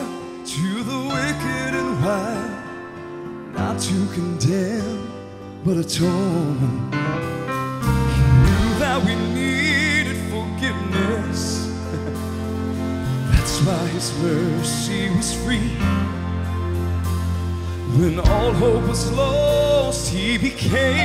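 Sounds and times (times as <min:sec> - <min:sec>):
man singing with vibrato: 0:00.0 - 0:07.0, 0:08.0 - 0:12.3, 0:13.2 - 0:16.5, 0:17.8 - 0:21.0
band accompaniment: 0:07.2 - 0:21.0.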